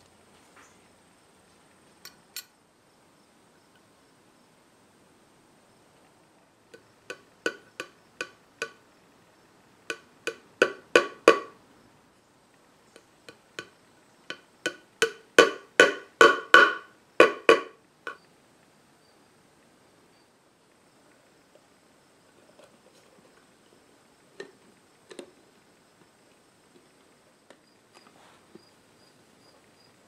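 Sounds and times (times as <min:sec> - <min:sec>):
light hammer taps on pins: 0:13.3 - 0:18.2.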